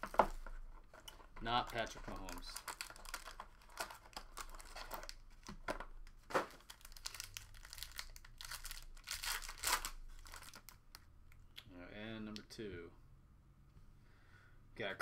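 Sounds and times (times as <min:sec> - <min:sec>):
foil wrapper crinkling and tearing: 0:01.6 - 0:05.5, 0:06.6 - 0:10.8.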